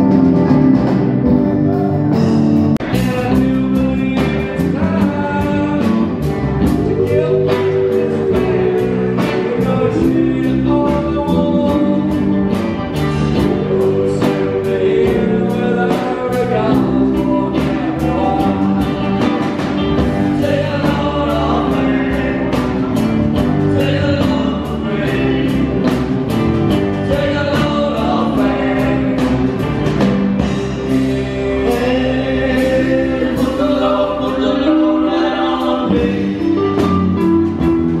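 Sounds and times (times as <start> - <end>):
drum kit beat: 0.0 - 38.0
electric guitars: 0.0 - 38.0
man singing into microphone: 2.9 - 12.3, 13.3 - 19.5, 20.2 - 22.8, 23.7 - 25.9, 27.0 - 29.4, 31.4 - 36.9.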